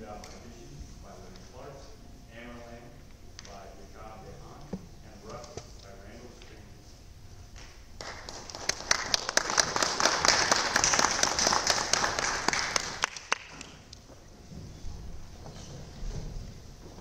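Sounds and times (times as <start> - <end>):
crowd applause: 8.0 - 13.9.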